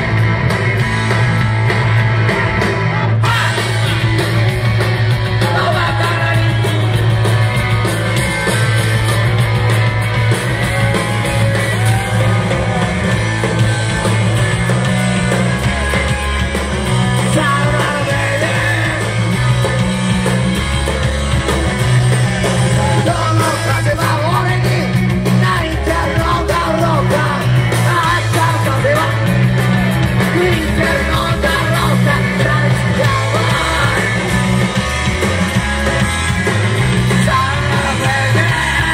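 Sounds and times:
bass guitar: 0.0s - 38.9s
drums: 0.0s - 38.9s
electric guitar: 0.0s - 38.9s
person singing into microphone: 17.2s - 19.1s, 22.8s - 29.3s, 30.3s - 34.2s, 37.1s - 38.9s.

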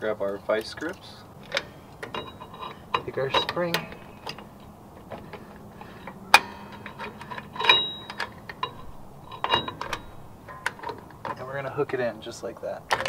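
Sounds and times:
metal clicks and clinks: 0.3s - 11.7s
ringing metallic clink: 1.5s - 4.7s, 6.3s - 11.1s.

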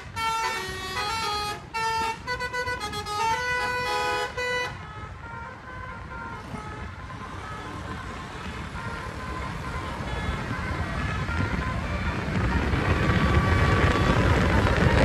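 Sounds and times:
bus engine: 0.0s - 15.0s
bus melodic horn tune: 0.0s - 15.0s
road noise: 0.0s - 15.0s.

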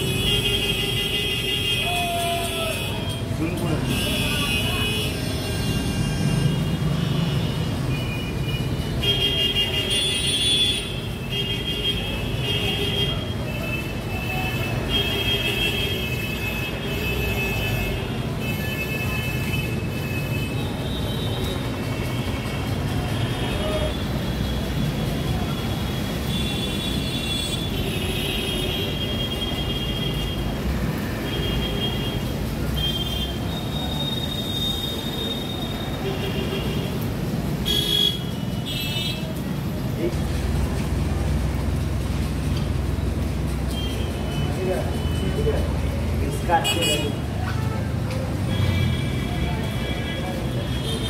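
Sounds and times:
traffic engines rumbling: 0.0s - 51.0s
vehicle horns tooting: 37.6s - 39.3s.

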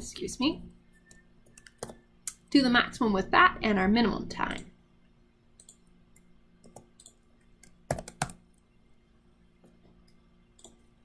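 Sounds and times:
keyboard keystrokes: 6.7s - 8.4s.

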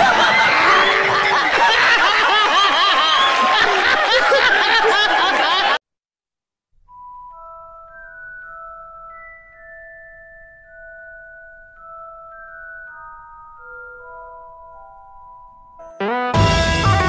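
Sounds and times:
group of people laughing: 0.0s - 5.8s
soft chime-like musical notes: 6.9s - 16.2s.

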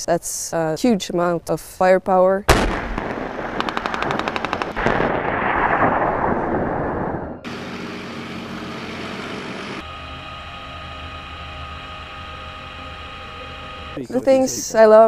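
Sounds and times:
machine-gun burst: 2.5s - 6.7s
tank gun firing with rolling rumble: 2.5s - 7.7s
tank engine running: 7.4s - 15.0s
steady hum with fixed tones: 8.5s - 15.0s.

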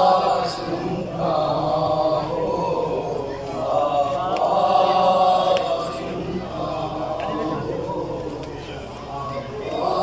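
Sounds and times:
men chanting in unison: 0.0s - 10.0s.

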